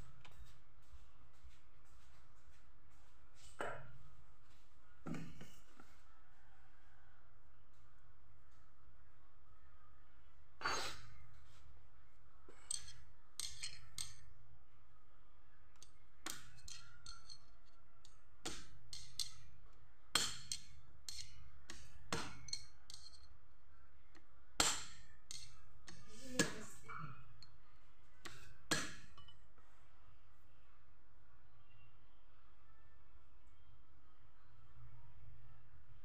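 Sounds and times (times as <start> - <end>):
metallic tool clicks and clinks: 12.6 - 14.2.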